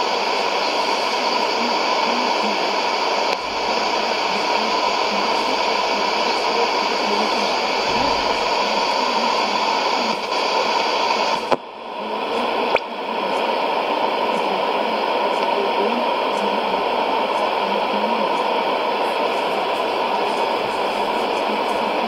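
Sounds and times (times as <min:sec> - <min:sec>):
radio static hiss: 0:00.0 - 0:22.0.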